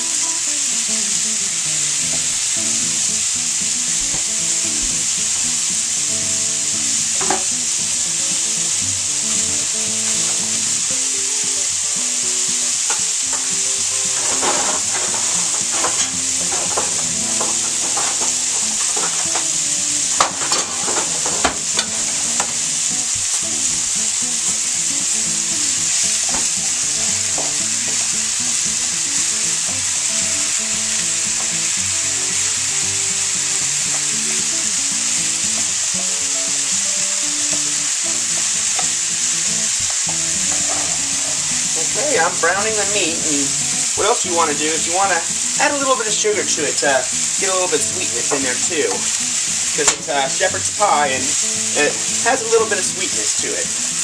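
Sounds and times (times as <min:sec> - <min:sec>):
meat and onion sizzling in pan: 0:00.0 - 0:54.0
spatula scraping a pan: 0:12.9 - 0:22.8.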